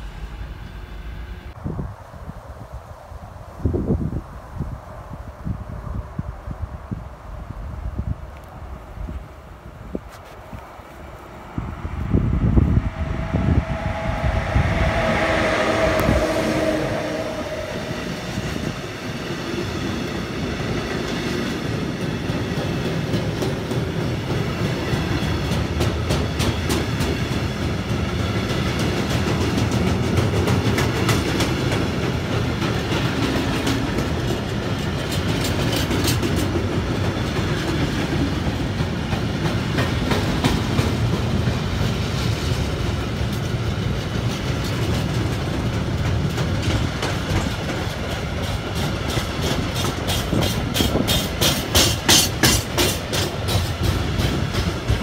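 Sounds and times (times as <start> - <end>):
electric locomotive whine: 0.0 - 2.0, 10.6 - 55.0
freight wagons rumbling on rails: 9.0 - 55.0
wheels clicking over rail joints: 20.0 - 55.0.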